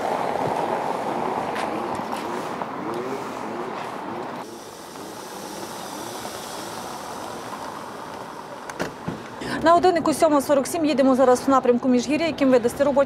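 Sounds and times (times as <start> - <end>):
car driving over cobblestones: 0.0 - 9.4
street noise: 0.0 - 13.0.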